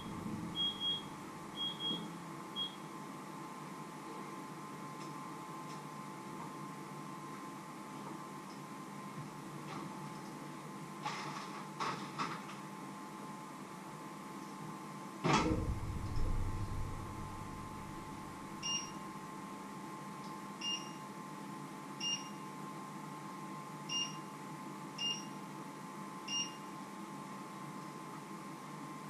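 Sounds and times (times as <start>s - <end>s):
steady electrical hum: 0.0s - 29.0s
heavy knock: 15.3s - 18.6s.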